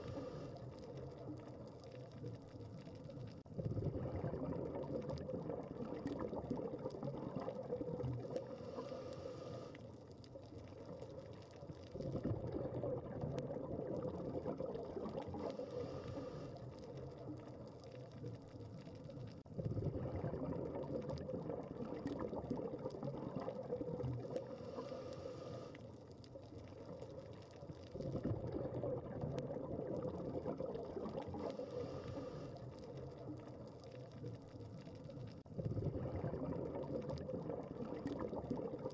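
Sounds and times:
rush of exhaled bubbles: 0.0s - 38.9s
scuba regulator inhale hiss: 8.4s - 9.8s, 15.4s - 16.6s, 24.5s - 25.8s, 31.4s - 32.6s.

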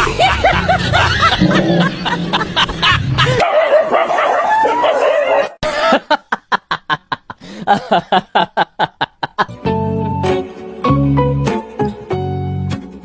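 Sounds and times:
laughing bursts: 0.0s - 3.4s.

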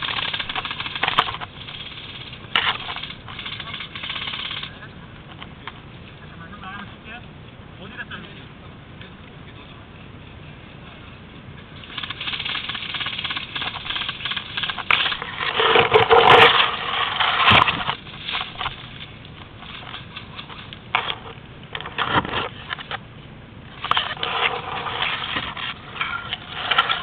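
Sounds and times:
brush and twigs crackling: 11.8s - 23.0s.

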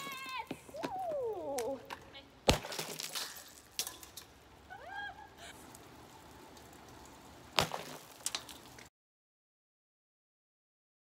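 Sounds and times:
breaking pieces clattering: 2.5s - 4.3s.

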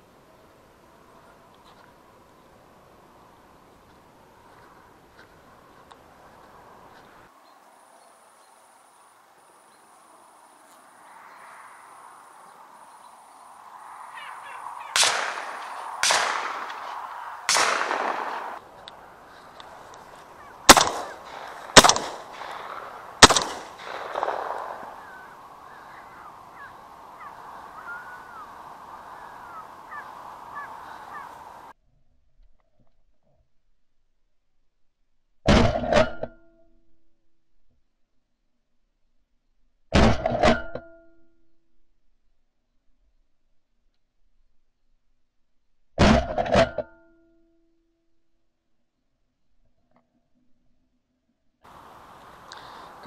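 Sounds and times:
ducks calling: 12.5s - 31.7s, 51.7s - 53.0s
shotgun shots: 14.8s - 18.8s, 20.3s - 26.2s.

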